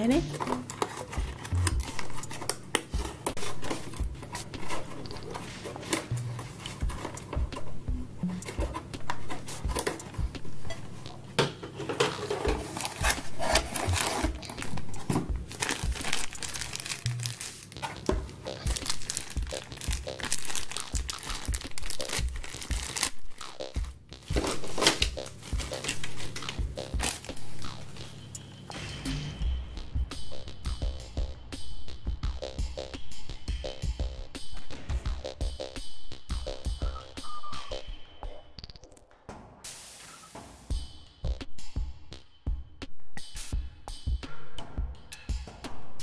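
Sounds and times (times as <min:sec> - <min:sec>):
plastic wrapping crinkling and tearing: 0:00.2 - 0:07.2, 0:12.1 - 0:28.1.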